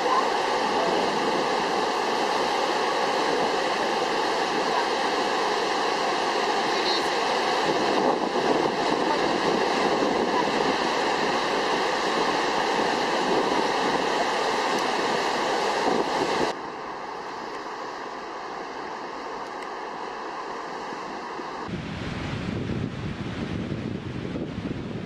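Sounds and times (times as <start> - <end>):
water rushing down spillway: 0.0 - 16.6.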